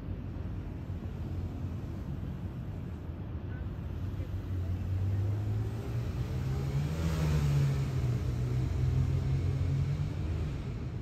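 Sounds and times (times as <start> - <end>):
car engine driving past: 4.0 - 11.0.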